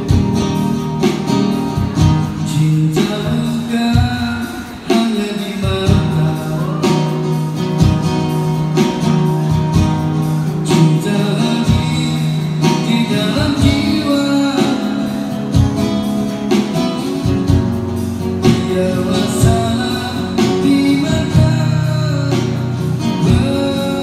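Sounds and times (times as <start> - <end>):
acoustic guitar strumming: 0.0 - 24.0
man singing: 1.8 - 17.6, 18.2 - 24.0.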